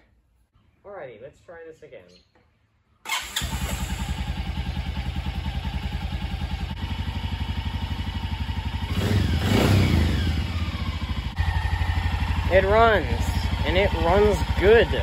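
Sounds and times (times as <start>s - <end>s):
engine idling and revving: 3.1s - 15.0s.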